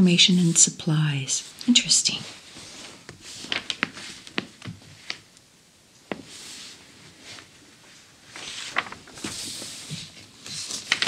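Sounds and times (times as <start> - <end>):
paper rustling: 2.5 - 5.3, 6.1 - 11.0
magazine page turning: 2.6 - 5.3, 8.3 - 11.0.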